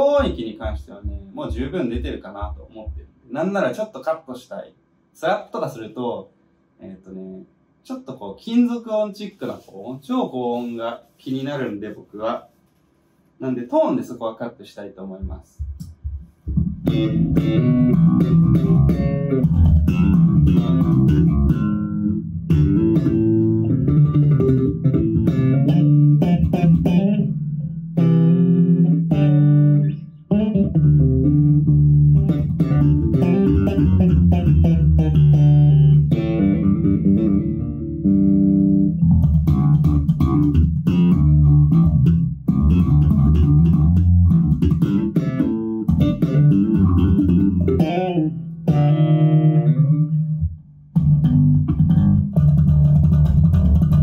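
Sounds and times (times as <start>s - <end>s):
electric bass plucked notes: 15.6s - 54.0s.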